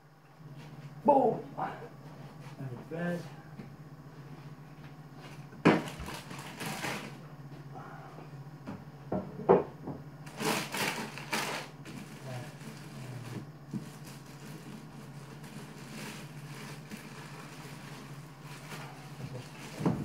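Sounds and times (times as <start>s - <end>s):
steady low hum: 0.0s - 20.0s
sharp knocks in cupboard: 8.7s - 10.0s.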